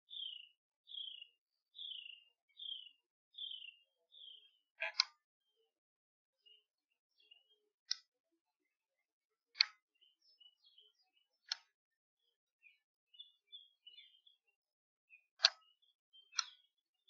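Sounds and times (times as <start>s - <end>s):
faint sharp clicks: 7.9s - 8.1s, 9.6s - 9.8s, 11.4s - 11.7s, 15.4s - 15.6s, 16.4s - 16.6s.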